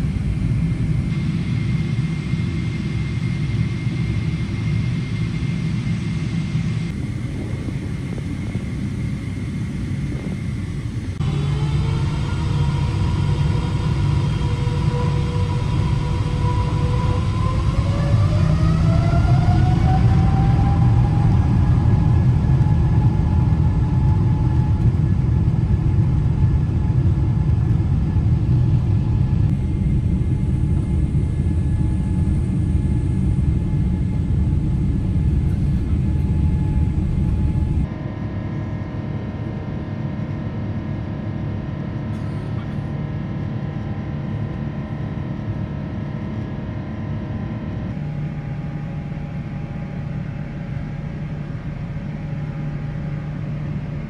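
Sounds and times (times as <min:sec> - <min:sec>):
engine whine rising: 0:00.0 - 0:42.1
jet cabin engine rumble: 0:00.0 - 0:54.0.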